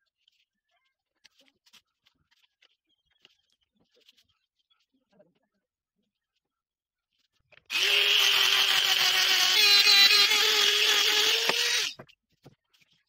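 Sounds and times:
rotary tool grinding wood: 7.7s - 12.0s.

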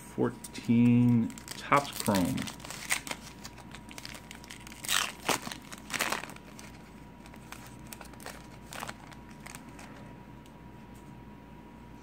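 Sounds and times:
foil wrapper tearing and crinkling: 0.6s - 9.9s.

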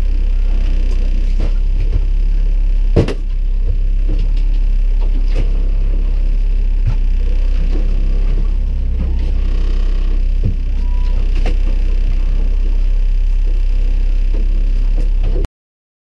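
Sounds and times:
outboard motor droning: 0.0s - 15.5s.

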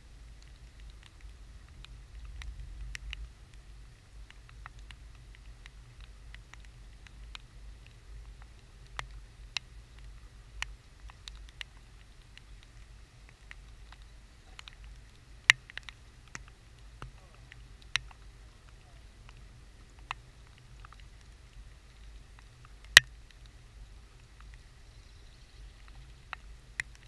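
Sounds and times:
low steady rumble: 0.0s - 27.0s
raindrops tapping on camera: 0.0s - 27.0s.

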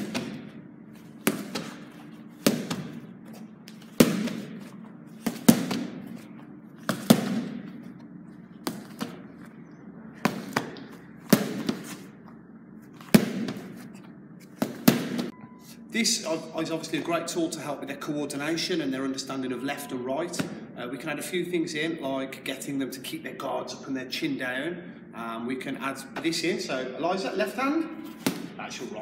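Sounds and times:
punches slapping focus mitts: 0.0s - 0.5s, 1.2s - 3.1s, 3.7s - 6.1s, 6.8s - 7.8s, 8.6s - 9.3s, 10.2s - 12.0s, 13.0s - 13.8s, 14.6s - 15.3s, 28.2s - 28.6s.

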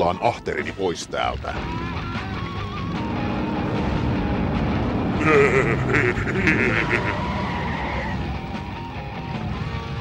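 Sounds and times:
warbling cry-like effect: 5.2s - 8.2s.

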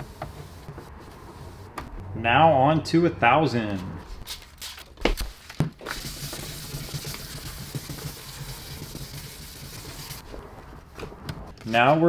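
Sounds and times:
sandpaper scrubbing wet plastic: 5.9s - 10.3s.

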